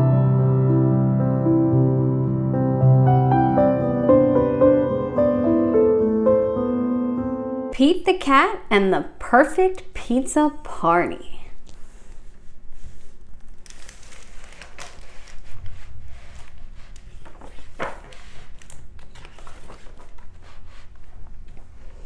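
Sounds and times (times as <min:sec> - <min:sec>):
page-turn swish: 0:11.6 - 0:22.0
paper rustling: 0:11.6 - 0:22.0
book handling clicks: 0:13.3 - 0:21.7.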